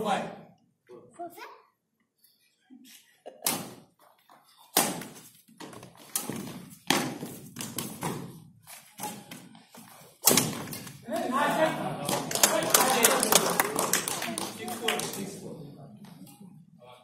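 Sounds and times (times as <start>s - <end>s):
racquets smacking shuttlecock: 4.7s - 11.0s.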